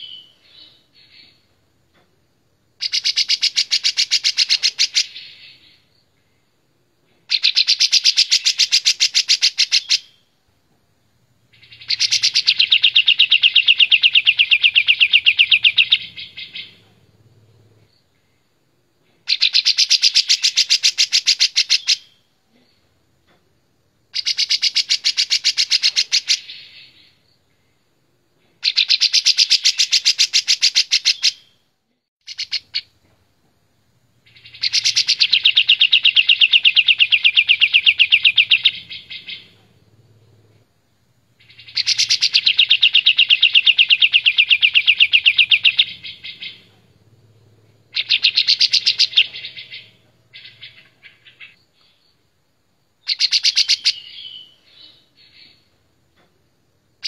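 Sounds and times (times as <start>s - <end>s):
bird singing rapid notes: 11.5s - 17.7s, 32.2s - 32.9s, 34.2s - 40.5s, 41.4s - 52.0s, 53.0s - 55.7s.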